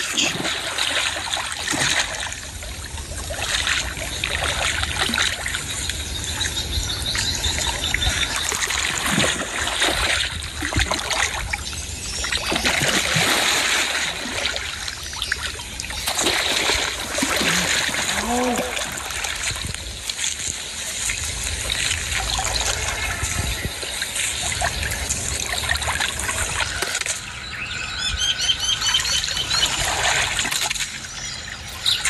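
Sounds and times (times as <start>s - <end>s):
fish thrashing and splashing: 0.0s - 5.6s, 8.5s - 11.5s, 12.4s - 27.2s.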